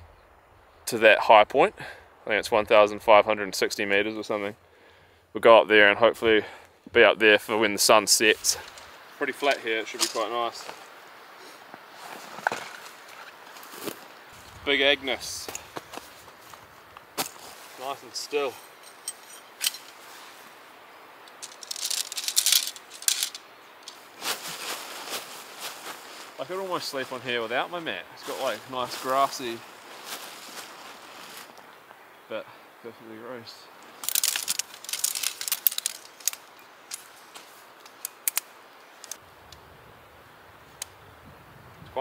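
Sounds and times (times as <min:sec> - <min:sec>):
tent poles clattering and clicking: 0:08.4 - 0:10.9, 0:11.7 - 0:14.6, 0:15.3 - 0:20.4, 0:21.2 - 0:26.4, 0:33.8 - 0:39.2.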